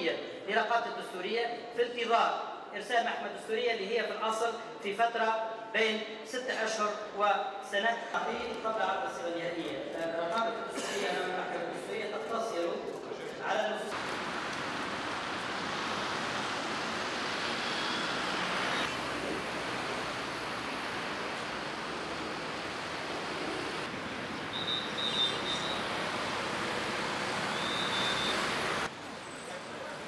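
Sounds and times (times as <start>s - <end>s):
street traffic noise: 12.9s - 30.0s.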